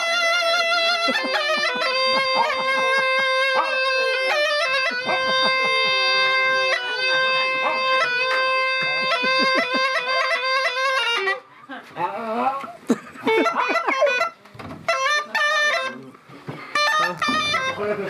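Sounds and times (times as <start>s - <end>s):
bagpipe playing a tune: 0.0s - 11.5s, 13.3s - 18.0s
dog howling: 3.4s - 4.0s.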